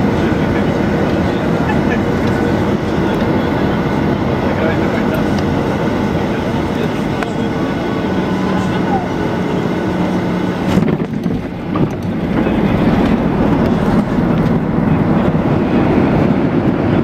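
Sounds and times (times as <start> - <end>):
jet engine and wheel rumble: 0.0 - 17.0
plane landing jolt: 10.2 - 17.0.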